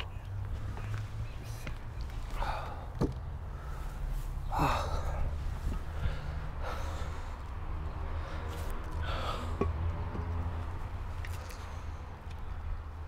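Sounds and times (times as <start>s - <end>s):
man breathing out heavily: 2.3s - 9.8s.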